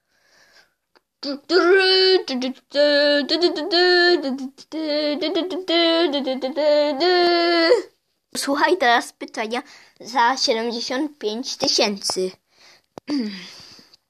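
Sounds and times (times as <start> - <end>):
girl singing wordless jingle: 1.2 - 12.4.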